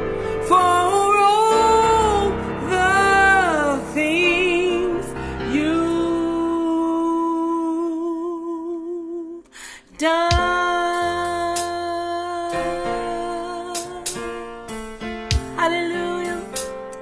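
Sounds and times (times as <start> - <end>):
keyboard accompaniment: 0.0 - 17.0
woman singing gospel runs: 10.0 - 14.0.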